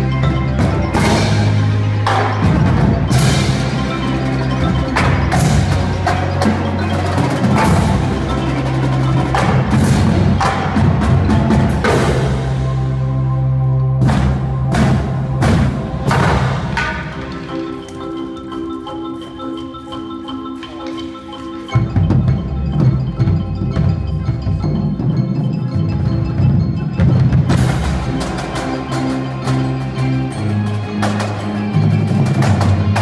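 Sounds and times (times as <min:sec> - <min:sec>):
marimbas and mallet instruments: 0:00.0 - 0:33.0.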